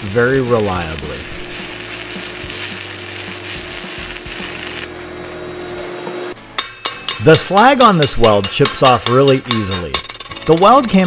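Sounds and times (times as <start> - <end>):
welding arc crackling: 0.0 - 5.4.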